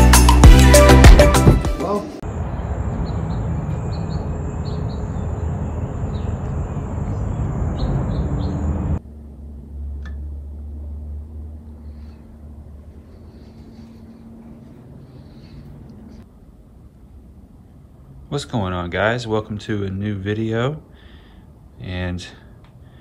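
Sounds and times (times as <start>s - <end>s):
steady outdoor rush: 2.2s - 19.9s
small birds chirping: 2.5s - 9.0s, 11.8s - 16.3s
low room hum: 8.8s - 23.0s.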